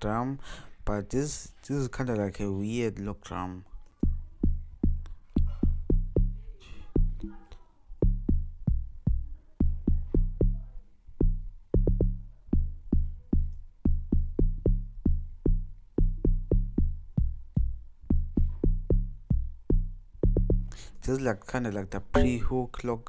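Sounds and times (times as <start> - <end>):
synth bass log drum riff: 4.0 - 20.8, 22.2 - 22.6.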